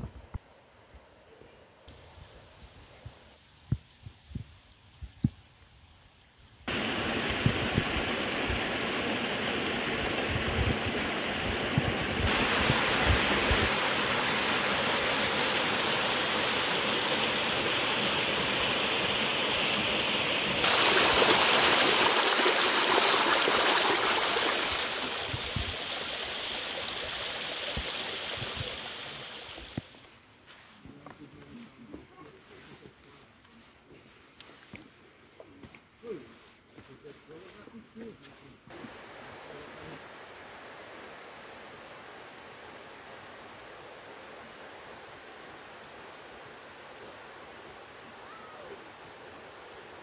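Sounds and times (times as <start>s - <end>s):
stream and waterfall rushing: 6.7s - 30.2s, 38.7s - 50.0s.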